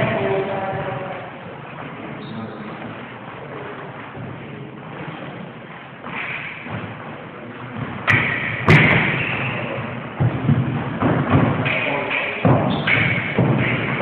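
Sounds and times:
sharp loud knocks: 0:07.8 - 0:14.0.

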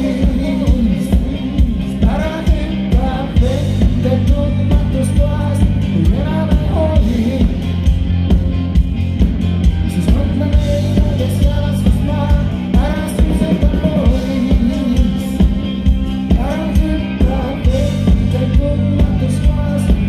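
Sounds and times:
live metal band playing: 0:00.0 - 0:20.0
person singing: 0:09.9 - 0:15.6, 0:16.3 - 0:20.0.

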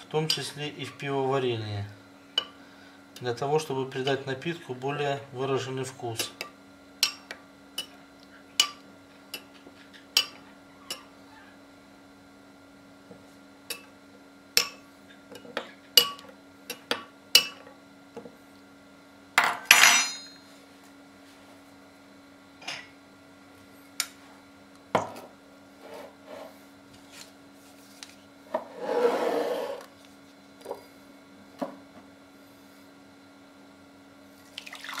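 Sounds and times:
faint steady hum: 0:00.0 - 0:35.0.

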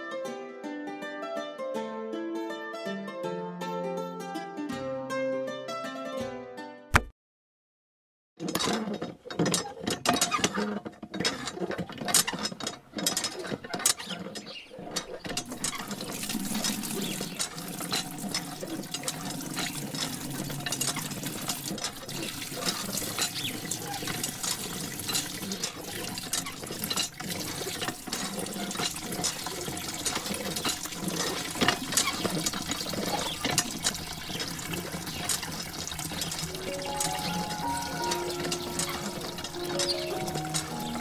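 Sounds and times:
water pouring and splashing: 0:11.4 - 0:41.0.

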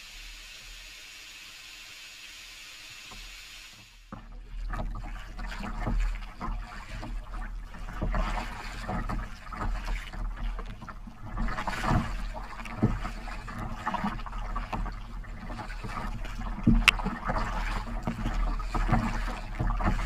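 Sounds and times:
water slapping against kayak hull: 0:04.1 - 0:20.0.

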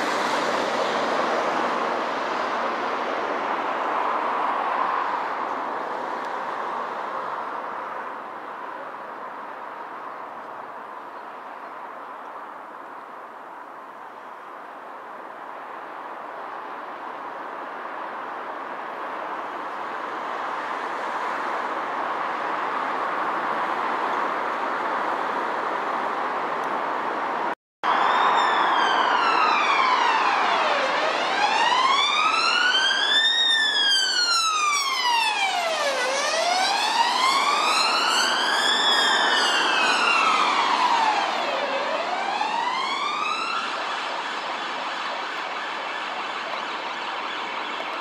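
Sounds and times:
road traffic hiss: 0:00.0 - 0:48.0
ambulance siren wailing: 0:27.8 - 0:48.0.

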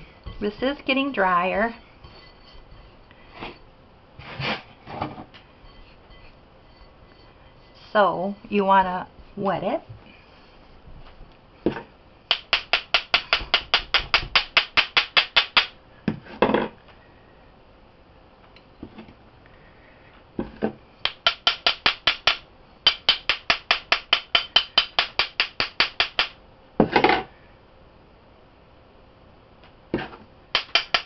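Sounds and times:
spoon tapping metal mould: 0:21.0 - 0:26.3.

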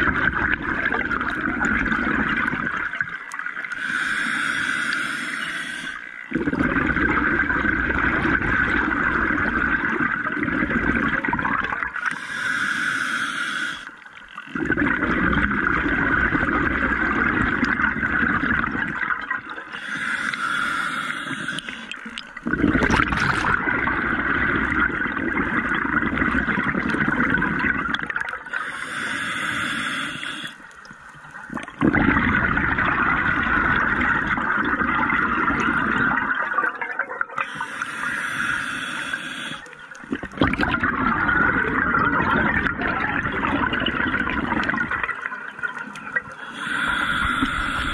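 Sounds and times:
exhaled air bubbling: 0:00.0 - 0:47.9
regulator inhale hiss: 0:03.7 - 0:06.2, 0:12.0 - 0:14.0, 0:19.7 - 0:22.2, 0:28.5 - 0:30.8, 0:37.4 - 0:40.0, 0:46.3 - 0:47.9.

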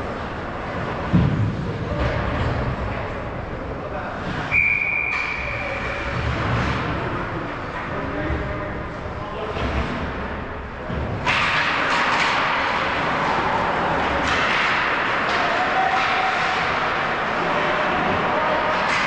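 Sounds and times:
sticks and puck clacking: 0:09.5 - 0:19.0.

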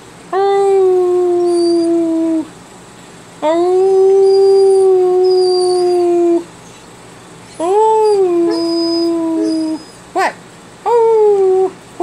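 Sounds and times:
puppy howling: 0:01.3 - 0:02.5, 0:03.8 - 0:06.8, 0:07.5 - 0:11.8
puppy yip: 0:07.5 - 0:10.4.

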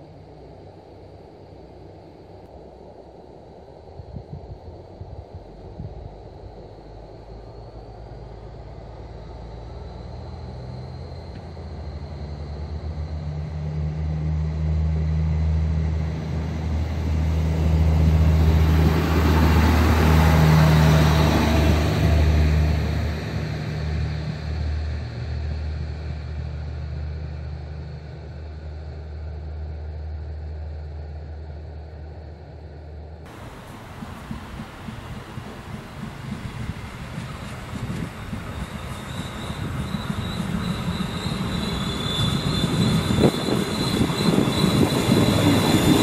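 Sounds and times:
diesel railcar drone: 0:00.0 - 0:46.0
wheel and rail noise: 0:33.3 - 0:46.0.

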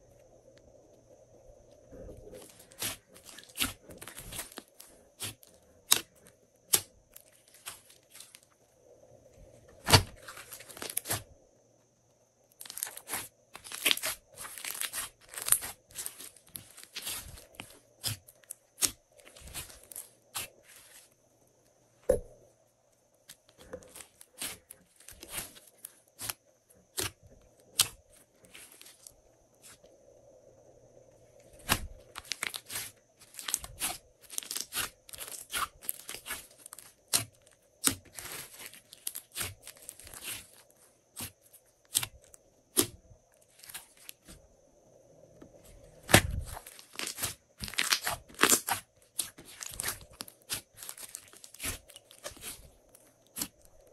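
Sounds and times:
slime crackling and popping: 0:02.4 - 0:08.4, 0:12.6 - 0:20.5, 0:23.9 - 0:29.1, 0:31.6 - 0:40.6, 0:46.0 - 0:52.7, 0:53.3 - 0:53.8.

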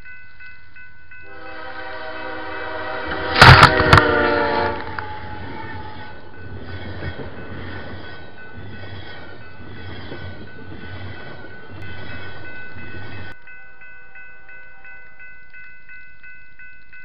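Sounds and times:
train wheels rumbling on rails: 0:01.3 - 0:13.6.

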